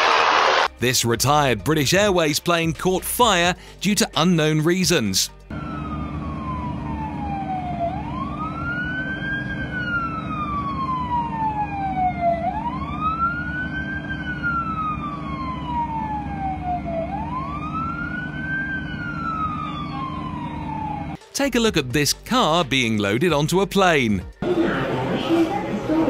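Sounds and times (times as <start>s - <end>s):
emergency siren wailing: 5.5s - 21.2s.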